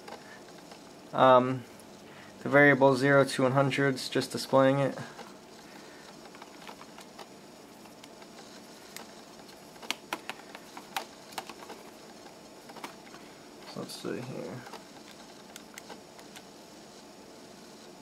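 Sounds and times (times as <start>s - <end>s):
calculator keys clicking: 6.2s - 8.3s, 9.8s - 11.8s.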